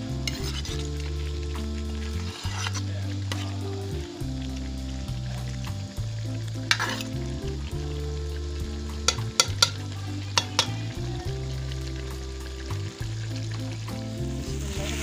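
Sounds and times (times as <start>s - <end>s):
metal ladle scraping a pot: 0.0s - 1.3s, 2.0s - 3.7s, 6.7s - 7.2s, 9.0s - 10.8s
curry sizzling: 0.0s - 15.0s
ladle clinking against pot: 9.1s - 9.8s.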